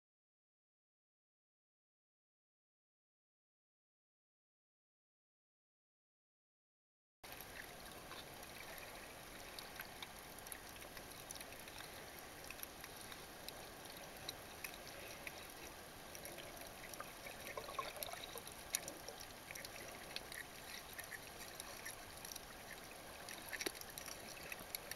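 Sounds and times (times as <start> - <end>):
faint water hiss: 7.2 - 24.9
small crackling clicks: 7.3 - 24.9.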